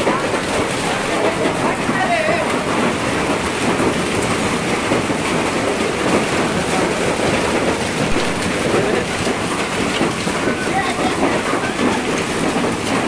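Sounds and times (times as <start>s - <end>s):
hail pattering on street: 0.0s - 13.0s.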